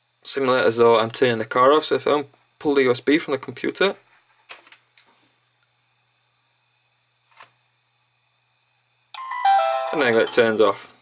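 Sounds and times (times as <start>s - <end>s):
electronic tone sequence stepping down: 9.2s - 10.5s.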